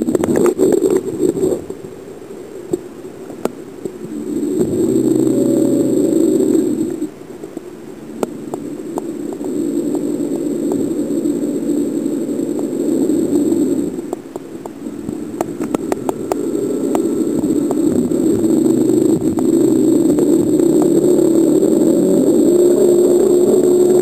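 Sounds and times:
muffled underwater rumble: 0.0s - 24.0s
sharp clicks and taps: 14.1s - 17.8s.

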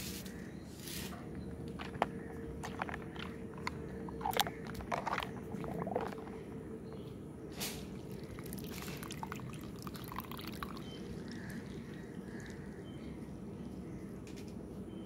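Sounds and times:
soapy water squelching and sloshing: 1.8s - 6.5s, 8.0s - 12.6s.

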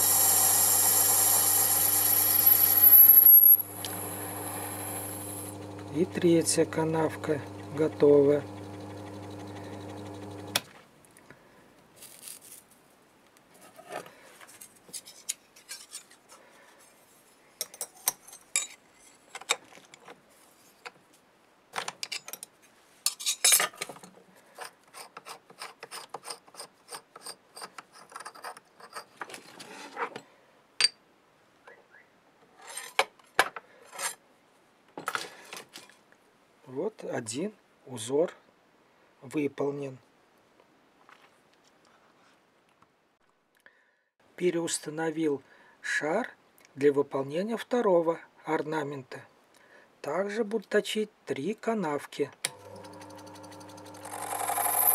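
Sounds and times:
lathe motor hum: 0.0s - 10.6s, 52.5s - 54.9s.

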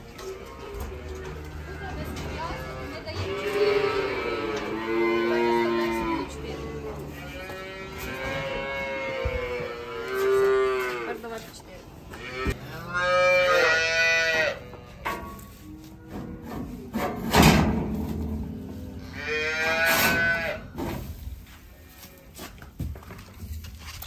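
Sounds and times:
calves mooing: 0.0s - 11.3s, 12.1s - 16.8s, 18.6s - 20.8s.

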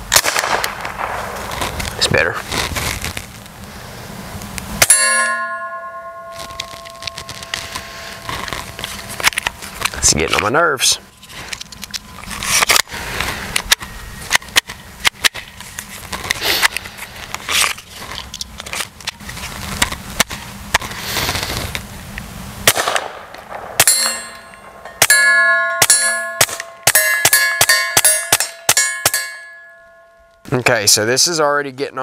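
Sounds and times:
suppressed gunshots: 0.1s - 1.8s, 22.6s - 25.2s
steel targets ringing: 4.8s - 9.2s, 22.7s - 30.5s.

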